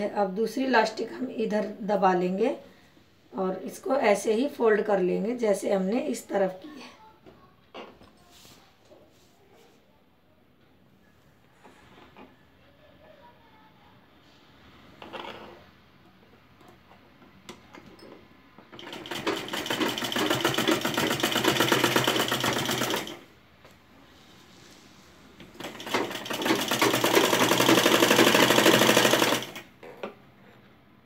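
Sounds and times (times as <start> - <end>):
sewing machine stitching: 18.7 - 23.2, 25.5 - 29.7.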